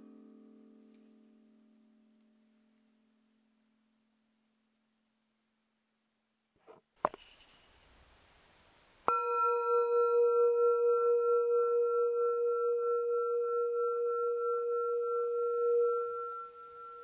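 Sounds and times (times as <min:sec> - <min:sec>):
singing bowl ringing: 0:09.1 - 0:17.0.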